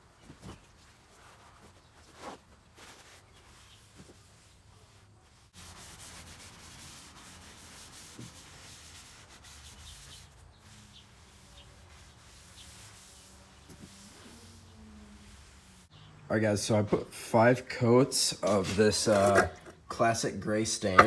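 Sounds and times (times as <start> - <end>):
paper towel rubbing on wood: 0.8 - 15.9.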